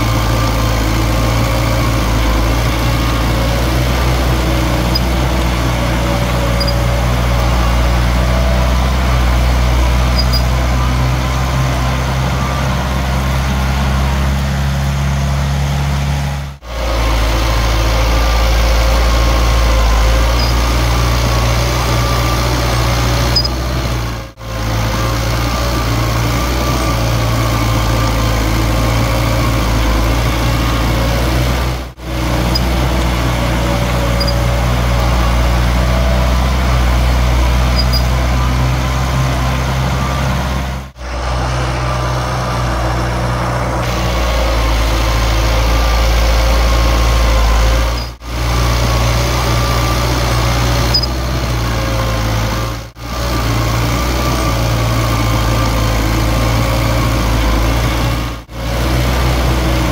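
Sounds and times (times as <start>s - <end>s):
heavy diesel engine running: 0.0s - 59.9s.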